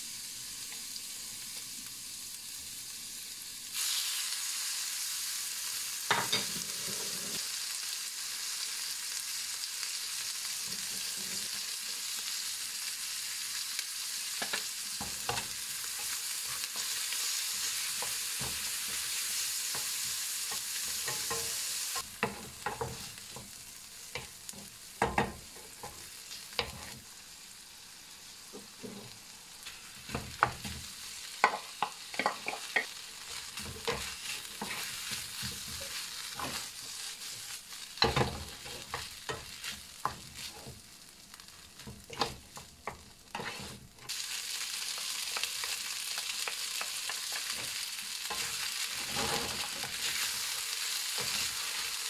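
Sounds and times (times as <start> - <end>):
food sizzling in a frying pan: 0.0 - 52.0
wooden spatula scraping a pan: 6.2 - 7.4, 26.6 - 27.0, 28.5 - 30.8, 31.4 - 40.8, 41.8 - 43.9, 47.4 - 52.0.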